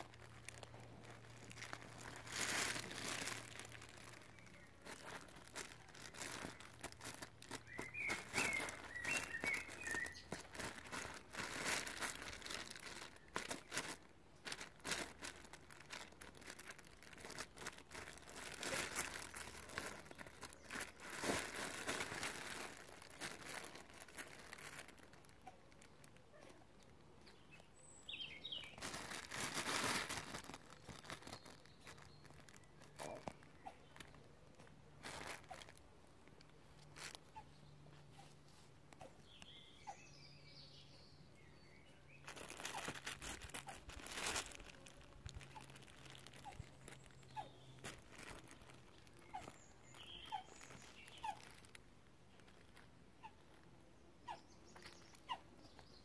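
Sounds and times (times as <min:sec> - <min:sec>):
fabric tunnel rustling and crinkling: 0:00.0 - 0:39.4, 0:42.2 - 0:53.7
bird twitter: 0:07.6 - 0:10.4, 0:27.2 - 0:28.8.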